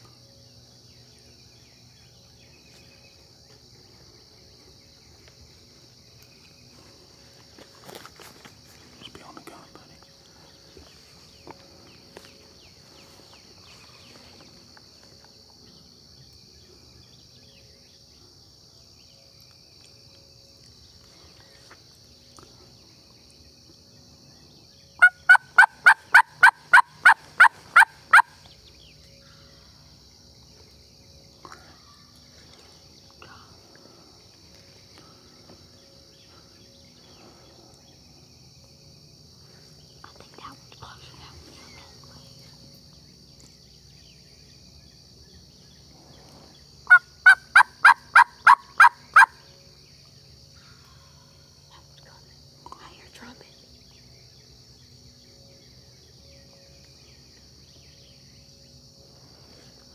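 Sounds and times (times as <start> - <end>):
high insect hum: 0.0 - 59.9
turkey call hen yelps: 25.0 - 28.4, 46.9 - 49.4.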